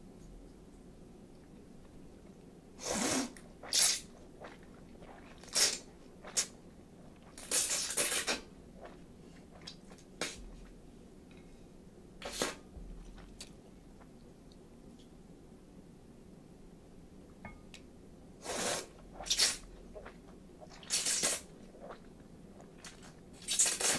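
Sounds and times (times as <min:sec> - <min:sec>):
noodles slurped: 0:02.8 - 0:10.4, 0:18.4 - 0:23.9.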